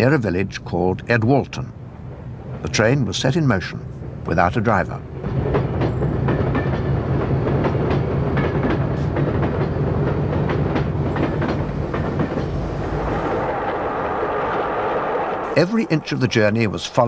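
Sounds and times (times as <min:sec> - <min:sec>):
diesel locomotive engine humming: 0:00.0 - 0:17.0
train wheels clacking over rail joints: 0:05.2 - 0:15.4.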